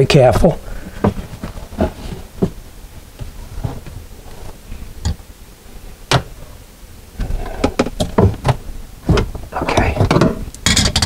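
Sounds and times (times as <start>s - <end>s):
clicks and knocks: 7.2s - 11.0s.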